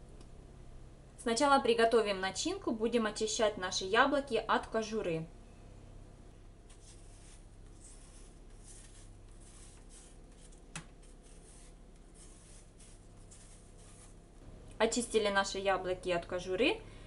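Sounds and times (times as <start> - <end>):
knife scraping apple peel: 6.7 - 14.2.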